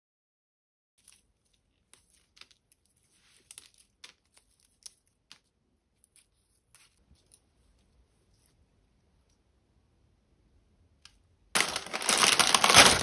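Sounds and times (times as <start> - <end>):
plastic wrapping crackling: 11.5 - 13.0
leaves stripped from stems: 11.6 - 13.0.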